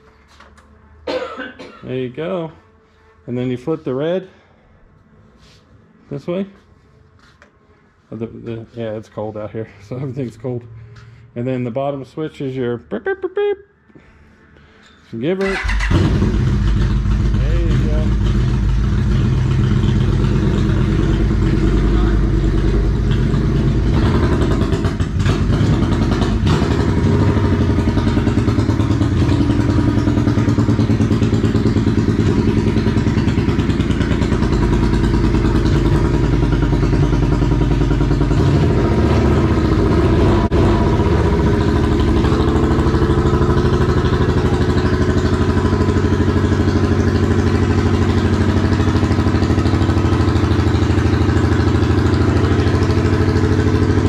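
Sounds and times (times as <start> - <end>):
motorcycle engine idling: 15.4 - 54.0.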